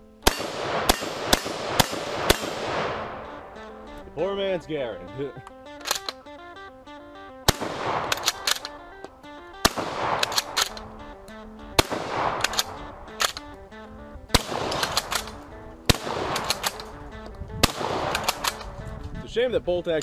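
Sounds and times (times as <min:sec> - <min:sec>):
background music: 0:00.0 - 0:20.0
shotgun shots: 0:00.2 - 0:03.9, 0:07.4 - 0:19.0
shotgun bolt clicking: 0:05.4 - 0:06.4, 0:07.5 - 0:19.2.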